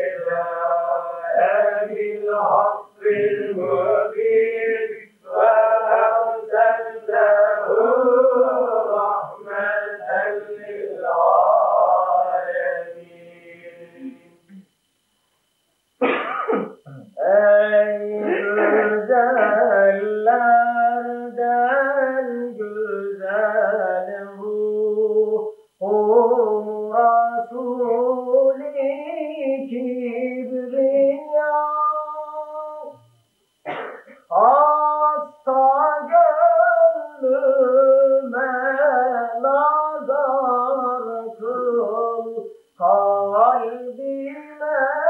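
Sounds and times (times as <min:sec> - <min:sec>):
man chanting: 0:00.0 - 0:14.5, 0:16.9 - 0:33.2, 0:34.2 - 0:45.0
throat clearing: 0:16.0 - 0:17.2, 0:18.2 - 0:19.6, 0:33.7 - 0:34.3.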